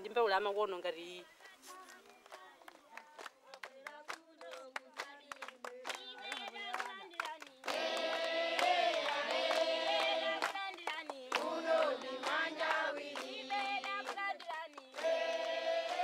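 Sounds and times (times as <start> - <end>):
group of voices singing: 2.9 - 16.0.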